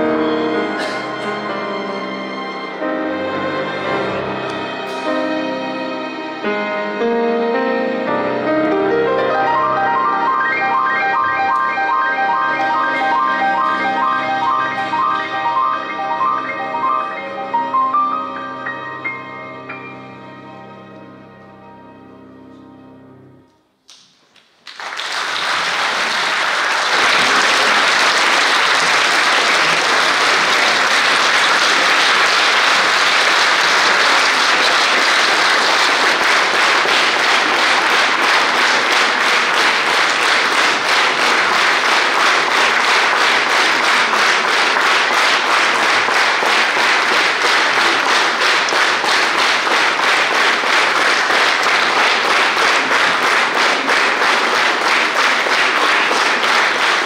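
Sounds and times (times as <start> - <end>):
audience applauding: 9.3 - 17.2, 23.9 - 57.0
clapping in unison: 23.9 - 57.0.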